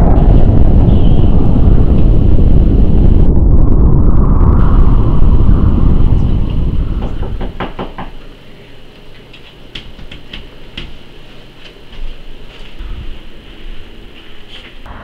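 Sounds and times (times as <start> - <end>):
low rumbling whoosh: 0.0 - 7.6
knocks on a door: 7.0 - 8.2.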